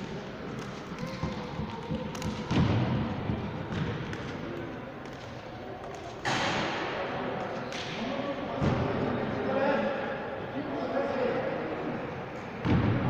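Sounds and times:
echoing voices: 0:00.0 - 0:13.0.

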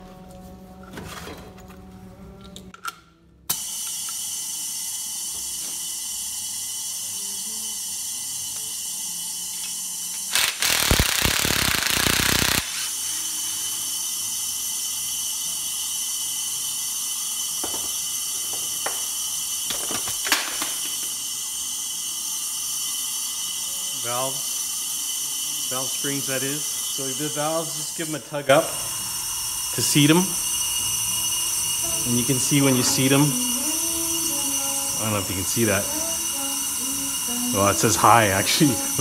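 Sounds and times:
steady hiss: 0:09.5 - 0:39.0
cordless drill running: 0:10.0 - 0:14.2, 0:24.2 - 0:39.0.

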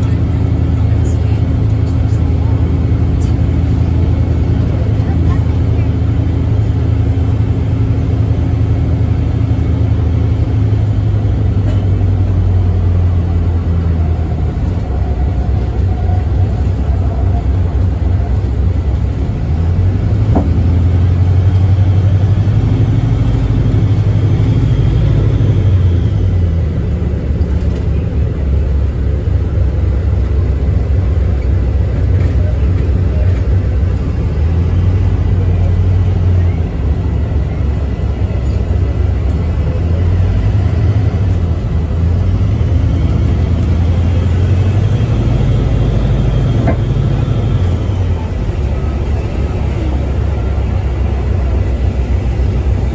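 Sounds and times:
bus cabin low rumble: 0:00.0 - 0:52.9.

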